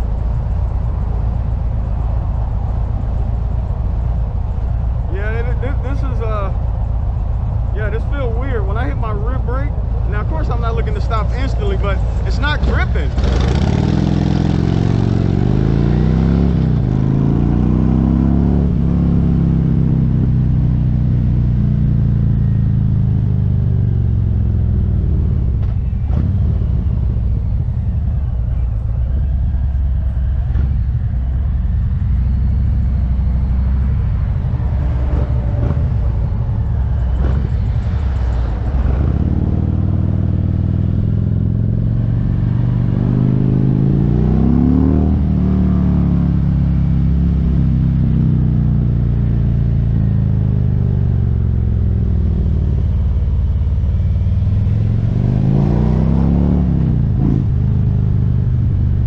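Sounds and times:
motorcycle engine: 0.0 - 59.0.

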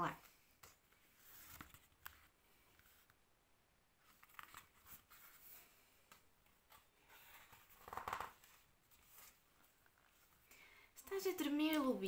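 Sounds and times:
paper rustling and clicking: 6.1 - 9.4.

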